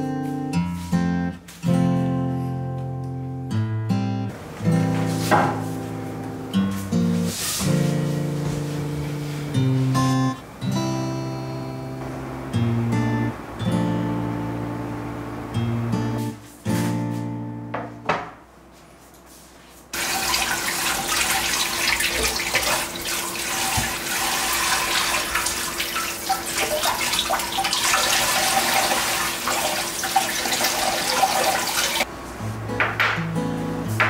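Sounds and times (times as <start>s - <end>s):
water splashing: 20.0s - 32.1s.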